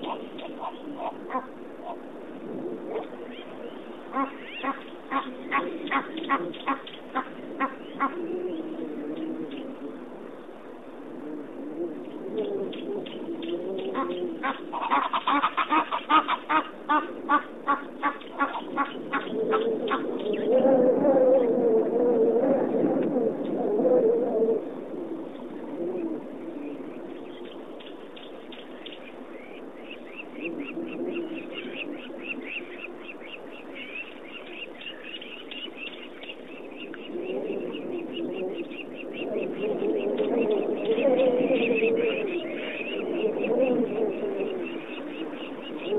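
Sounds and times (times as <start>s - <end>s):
low cooing: 0.0s - 27.7s, 30.2s - 35.0s, 35.6s - 45.9s
birds chirping: 3.2s - 8.7s, 26.7s - 45.9s.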